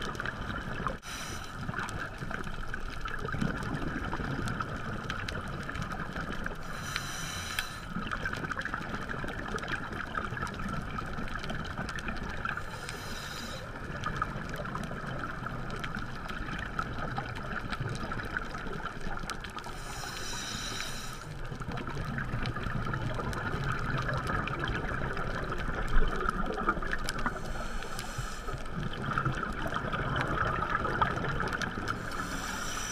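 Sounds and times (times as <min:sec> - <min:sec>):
muffled underwater hiss and rumble: 0:00.0 - 0:32.9
scuba regulator breathing: 0:01.0 - 0:02.0, 0:06.6 - 0:08.1, 0:12.5 - 0:13.8, 0:19.6 - 0:21.4, 0:27.2 - 0:28.8, 0:31.9 - 0:32.9.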